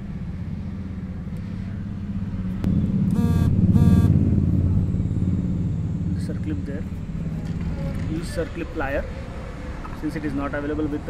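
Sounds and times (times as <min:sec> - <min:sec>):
vehicle engine rumbling: 0:00.2 - 0:08.3
short beeps: 0:03.1 - 0:04.2.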